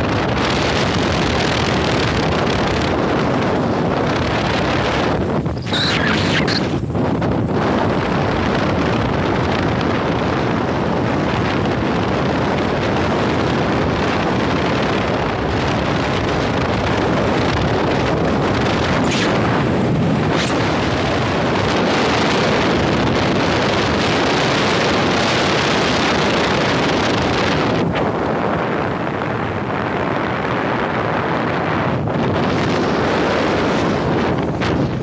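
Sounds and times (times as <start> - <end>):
wind buffeting microphone: 0.0 - 35.0.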